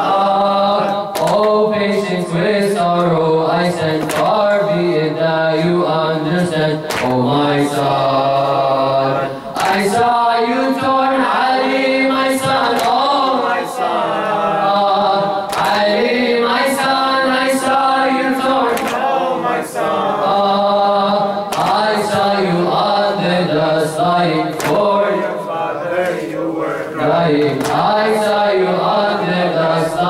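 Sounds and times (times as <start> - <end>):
man chanting into a microphone: 0.0 - 18.9, 19.7 - 30.0
chest-beating slaps: 1.1 - 1.6, 4.0 - 4.4, 6.9 - 7.2, 12.7 - 13.1, 15.5 - 15.9, 18.7 - 19.1, 21.5 - 21.9, 24.5 - 24.9, 27.4 - 28.0.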